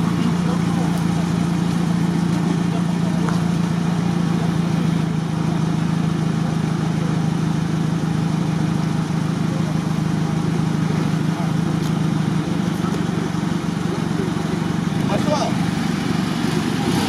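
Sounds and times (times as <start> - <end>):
engine idling: 0.0 - 17.0.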